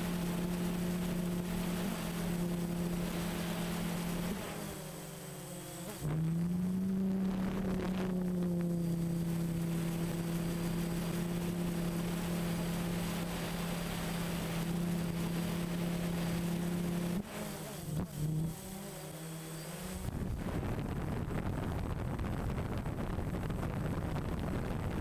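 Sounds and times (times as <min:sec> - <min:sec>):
drone propellers droning: 0:00.0 - 0:25.0
wind on microphone: 0:19.9 - 0:25.0.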